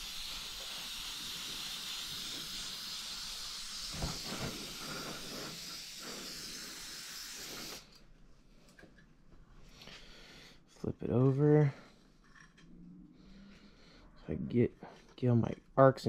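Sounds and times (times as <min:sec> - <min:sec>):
spray gun hissing: 0:00.0 - 0:07.9.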